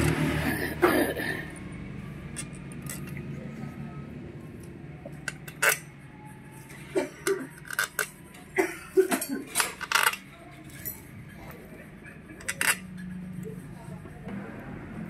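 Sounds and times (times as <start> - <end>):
metal bolts and tools clinking: 2.3 - 3.3, 5.1 - 6.0, 7.2 - 11.1, 12.4 - 13.1.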